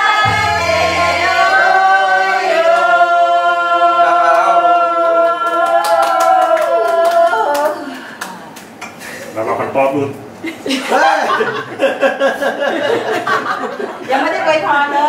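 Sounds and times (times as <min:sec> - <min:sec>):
group singing birthday song: 0:00.0 - 0:07.3.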